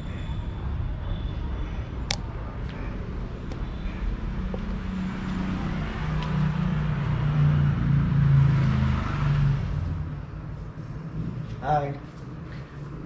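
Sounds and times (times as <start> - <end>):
vehicle passing by: 2.9 - 13.0.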